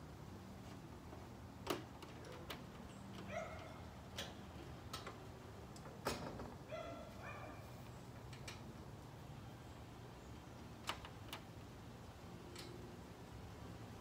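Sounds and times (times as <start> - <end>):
metal hardware clicking and knocking: 1.6 - 6.6.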